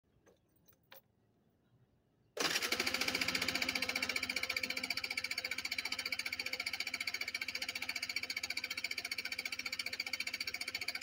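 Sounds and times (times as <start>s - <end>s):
scooter engine cranking: 2.4s - 11.0s.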